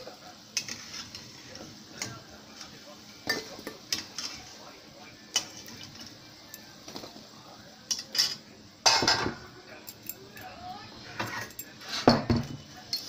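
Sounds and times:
metal spoon clinking on pan: 3.2s - 4.4s, 7.9s - 10.5s, 12.4s - 13.0s.

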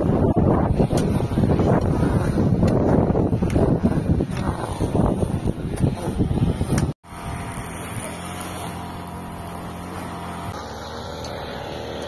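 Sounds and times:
wind buffeting microphone: 0.0s - 7.7s
steady engine hum: 0.0s - 12.0s.

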